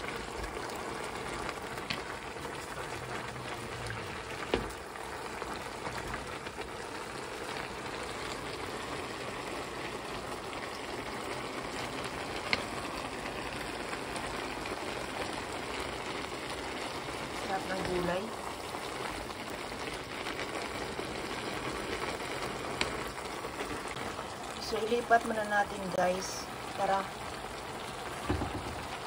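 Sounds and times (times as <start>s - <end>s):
food sizzling and bubbling in broth: 0.0s - 29.0s
sharp knocks: 28.2s - 28.9s.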